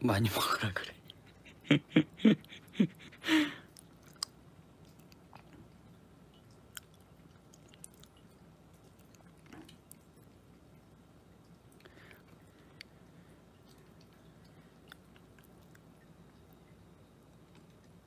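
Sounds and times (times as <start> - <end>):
puppy chewing food: 3.7 - 18.0.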